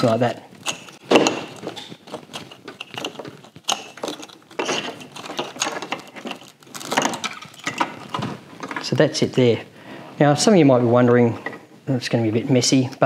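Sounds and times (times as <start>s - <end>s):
cables rustling against plastic: 0.0s - 9.0s.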